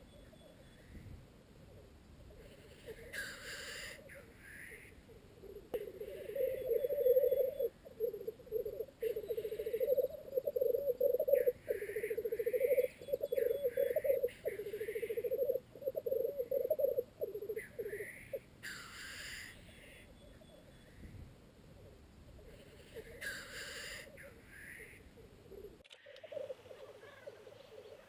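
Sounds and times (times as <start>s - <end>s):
grouse bubbling cooing song: 2.2s - 18.4s, 21.7s - 28.0s
bird hissing calls: 2.5s - 4.9s, 22.5s - 25.0s.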